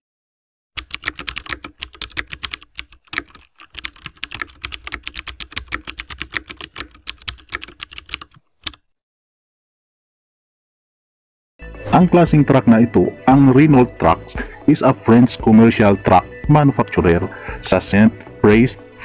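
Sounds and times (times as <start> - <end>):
keyboard typing clicks: 0.8 - 8.8.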